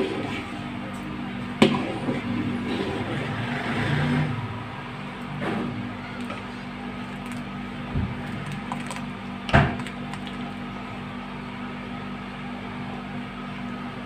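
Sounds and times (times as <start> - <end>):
ladle stirring thick soup: 5.7 - 11.1.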